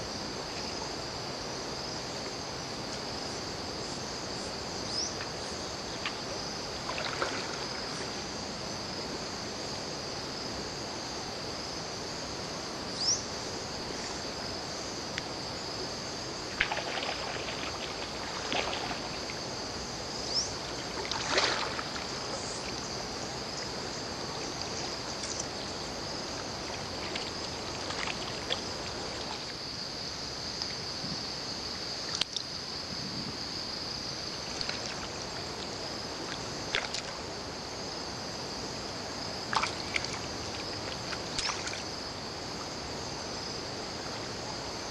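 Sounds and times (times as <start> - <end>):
insect chorus: 0.0 - 44.9
water splashes: 5.2 - 9.0, 14.7 - 29.9, 34.2 - 38.3, 39.0 - 43.0.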